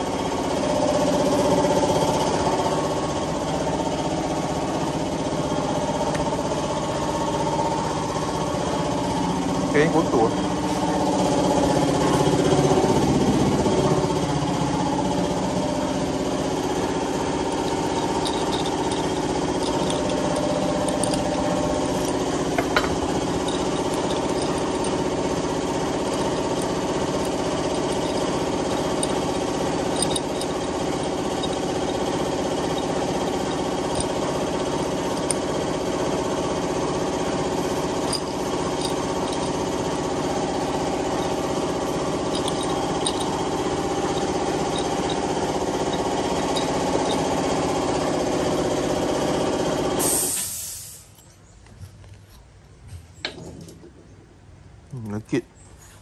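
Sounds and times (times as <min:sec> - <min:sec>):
small motor throbbing: 0:11.1 - 0:50.4.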